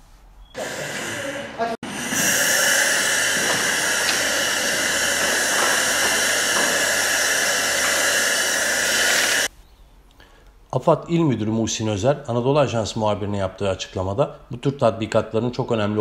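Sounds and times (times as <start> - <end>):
loud steady hiss: 0.6 - 9.5.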